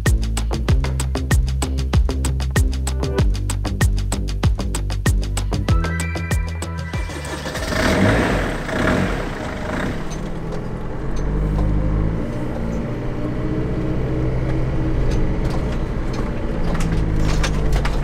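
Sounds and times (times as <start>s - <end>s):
motorhome engine droning: 5.8s - 18.0s.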